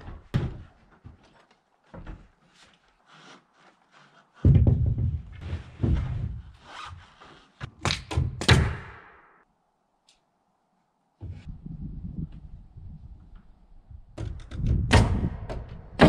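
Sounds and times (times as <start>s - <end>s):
wooden board knocking against wall: 4.4s - 6.2s.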